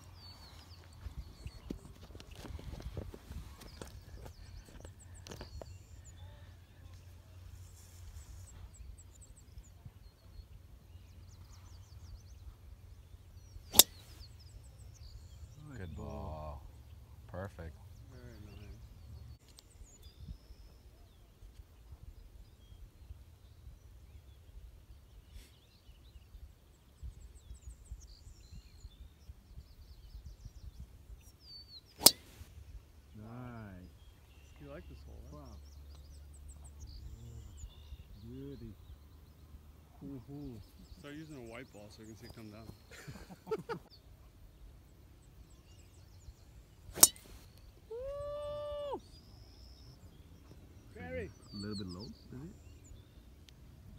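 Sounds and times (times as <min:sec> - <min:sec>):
faint bird chirps: 0:00.0 - 0:53.9
golf ball struck with driver: 0:13.7 - 0:14.1, 0:32.0 - 0:32.4, 0:46.9 - 0:47.4.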